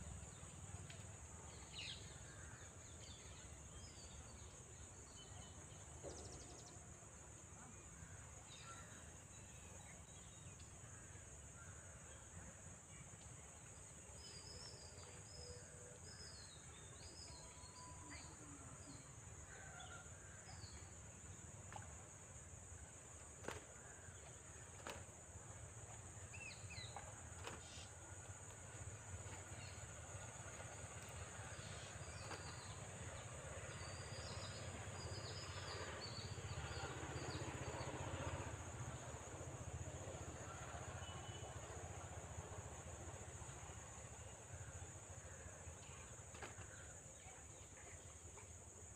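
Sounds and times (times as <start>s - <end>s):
high insect drone: 14.5s - 48.9s.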